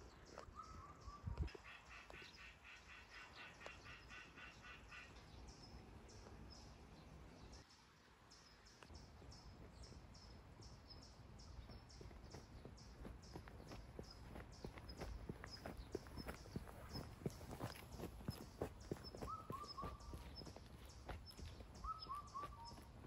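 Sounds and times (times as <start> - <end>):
pulsing animal calls: 14.7 - 23.0.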